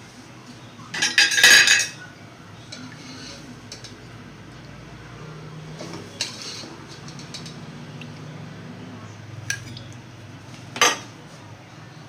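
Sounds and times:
utensils clinking on dishes: 0.9s - 2.0s, 2.7s - 4.0s, 5.8s - 7.6s, 10.8s - 11.1s.

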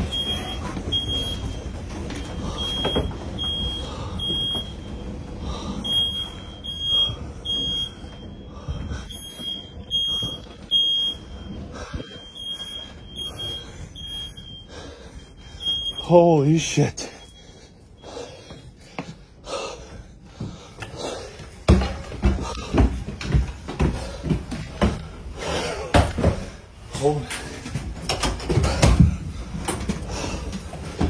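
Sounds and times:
smoke alarm beeping: 0.0s - 16.5s.

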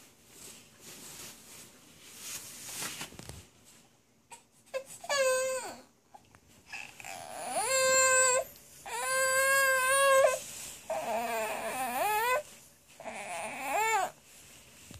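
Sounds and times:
baby whiny crying: 4.3s - 5.9s, 6.7s - 14.2s.

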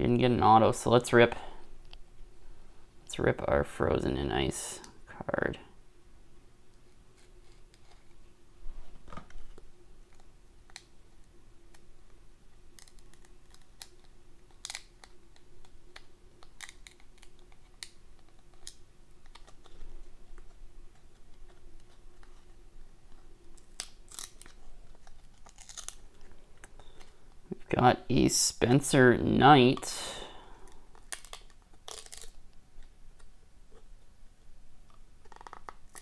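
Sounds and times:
cardboard card crackling: 12.7s - 27.6s, 30.6s - 33.9s, 34.8s - 36.0s.

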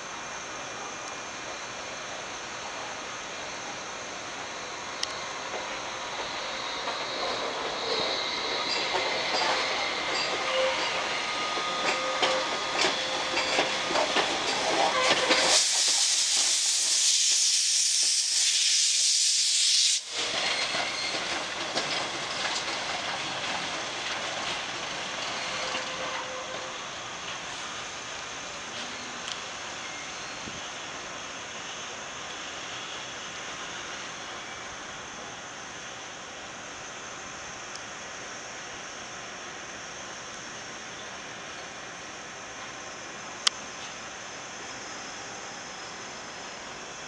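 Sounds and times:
steam hissing: 1.7s - 37.2s
train wheels clicking over rail joints: 5.0s - 18.4s, 20.1s - 27.5s.

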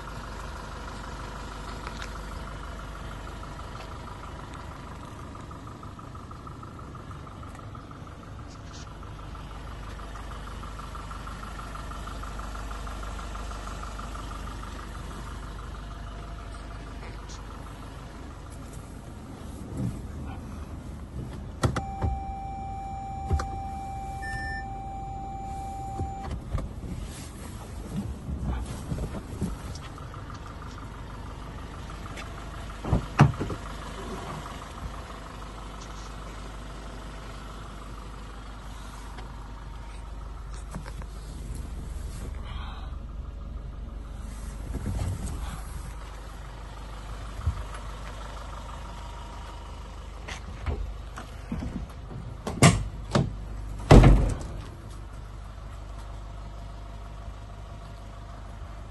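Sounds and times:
diesel engine idling: 0.0s - 58.9s
car door slamming: 32.8s - 33.6s, 52.4s - 54.7s.

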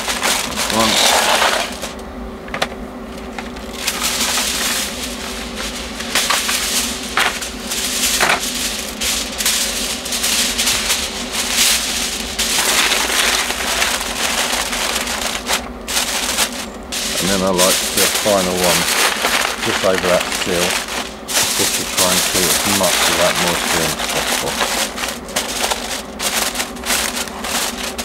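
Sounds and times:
sharp foil snaps: 0.0s - 2.0s, 3.2s - 28.0s
tin foil crinkling: 0.0s - 2.0s, 3.1s - 28.0s.

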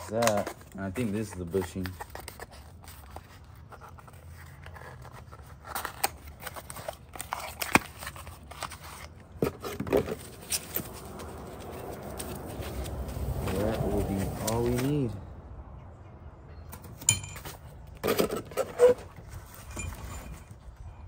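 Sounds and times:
cardboard boxes being opened: 0.0s - 15.1s
packing paper and foam rustling: 0.0s - 15.1s.

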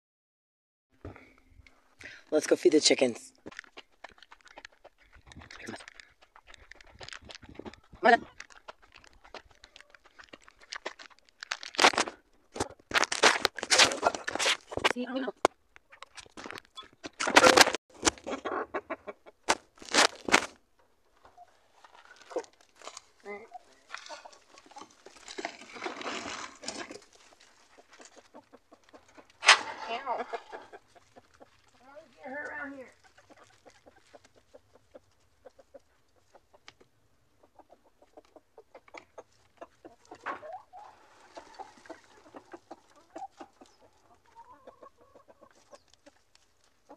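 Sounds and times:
hens clucking and squawking: 3.7s - 11.3s, 16.8s - 19.6s, 21.1s - 46.9s.

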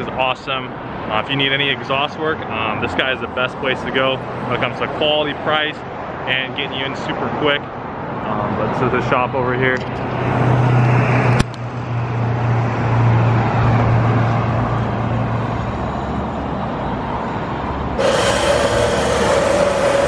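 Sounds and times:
mid-pitched whine: 18.0s - 20.0s
vehicle low hum: 18.0s - 20.0s.

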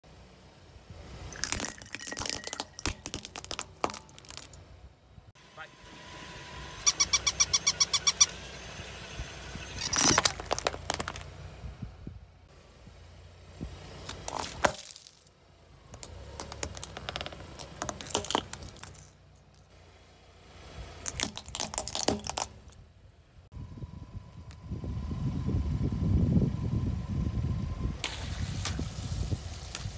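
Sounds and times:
car engine rumble: 0.0s - 29.9s
plastic cracking under tyre: 1.4s - 4.6s, 9.8s - 11.3s, 14.0s - 15.3s, 15.9s - 19.1s, 21.0s - 22.8s
electronic toy dog yips: 6.8s - 8.4s.

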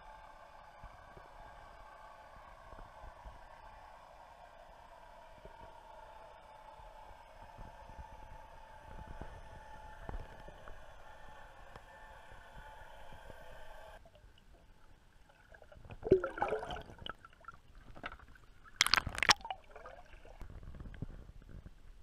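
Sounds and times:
water gurgling and splashing: 14.0s - 20.6s
bubbling gurgle: 14.0s - 20.8s.

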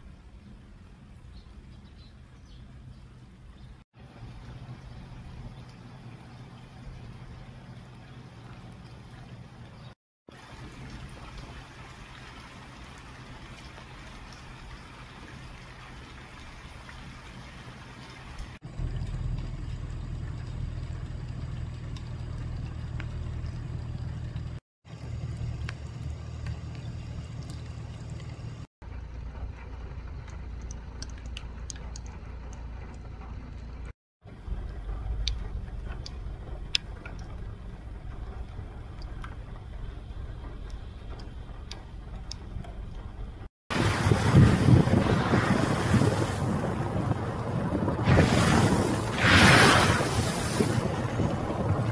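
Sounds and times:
low steady rumble: 0.0s - 51.9s
rain on tree leaves: 43.7s - 51.9s
wind buffeting microphone: 43.7s - 51.9s.

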